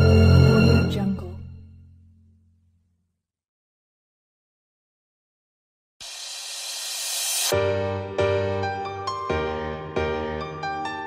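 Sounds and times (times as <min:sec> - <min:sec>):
slow piano chords: 0:07.5 - 0:11.0.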